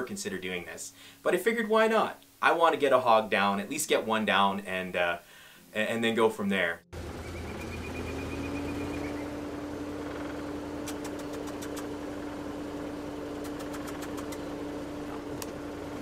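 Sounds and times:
utility vehicle engine whine: 0:06.9 - 0:16.0
light clicks: 0:10.8 - 0:11.9, 0:13.4 - 0:14.5, 0:15.3 - 0:15.6.

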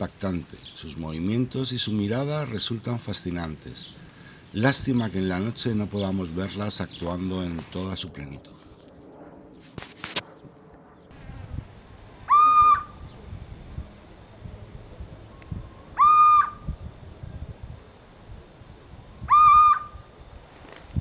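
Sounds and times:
high insect buzz: 0:11.1 - 0:21.0
owl hooting: 0:12.2 - 0:13.2, 0:15.4 - 0:16.9, 0:19.2 - 0:20.1.

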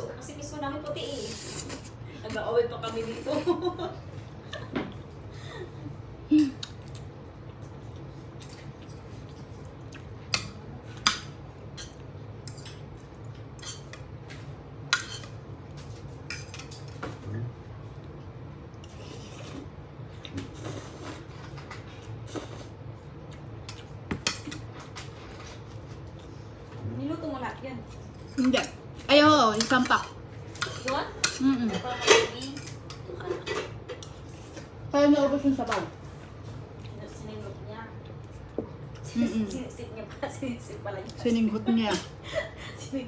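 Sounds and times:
steady low hum: 0:00.0 - 0:43.0
cutlery clinking against bowl: 0:14.9 - 0:15.4, 0:29.5 - 0:34.2.

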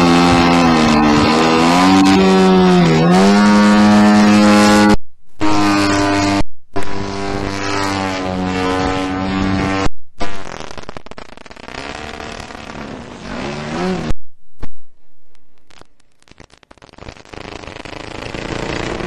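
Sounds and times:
model plane engine: 0:17.3 - 0:19.0.

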